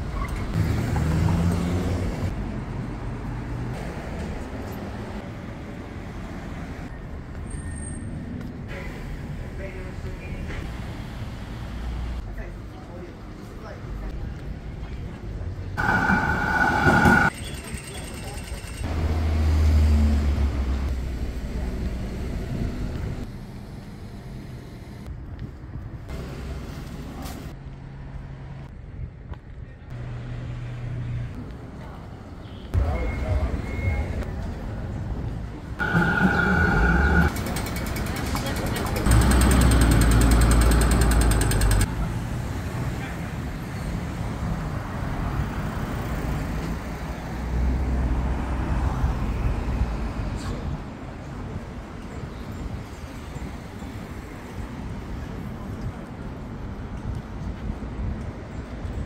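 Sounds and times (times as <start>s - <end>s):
passing road traffic: 0.0s - 12.9s, 15.3s - 25.1s, 30.0s - 58.9s
vehicle engine rumble: 15.3s - 17.4s, 32.8s - 42.3s.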